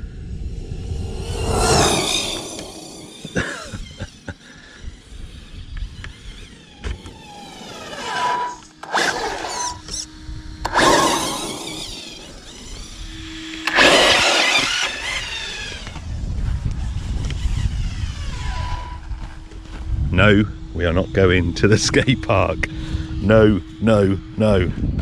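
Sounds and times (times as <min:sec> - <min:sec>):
electric rc car motor whining: 0:00.1 - 0:20.0.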